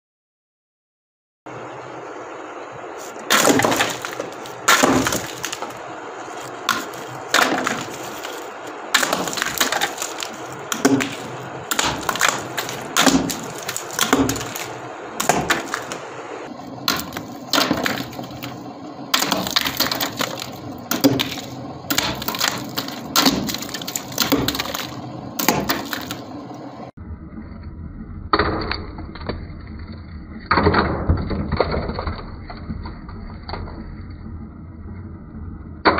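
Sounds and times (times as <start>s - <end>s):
exhaust fan humming: 1.5s - 26.9s
crackers smashed by fan blades: 3.0s - 26.6s.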